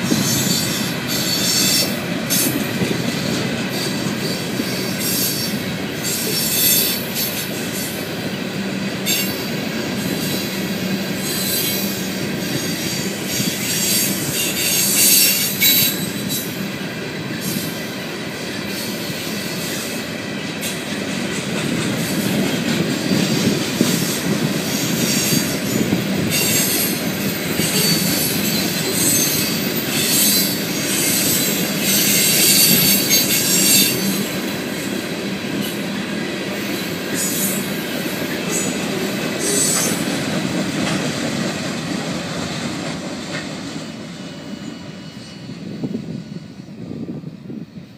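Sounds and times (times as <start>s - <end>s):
train wheels clattering on rails: 0.0s - 47.6s
high wheel squeals: 0.2s - 2.6s, 3.7s - 8.0s, 9.0s - 16.6s, 23.1s - 34.9s.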